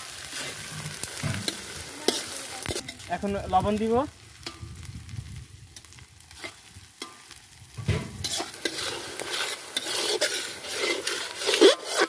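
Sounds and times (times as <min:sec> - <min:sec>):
frying sizzle: 0:00.0 - 0:12.0
metal spatula scraping pan: 0:00.2 - 0:03.1, 0:05.8 - 0:12.0.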